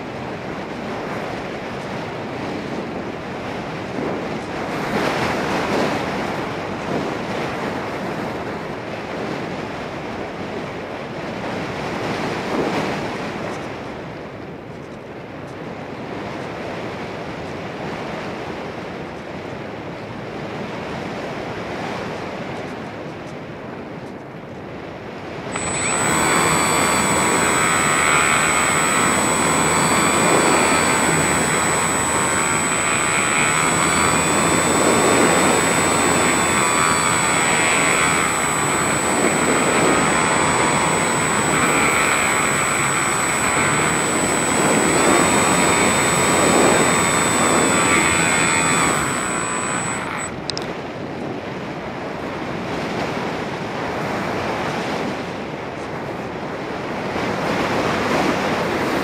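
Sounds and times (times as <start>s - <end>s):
electric motor whine: 25.5s - 50.4s.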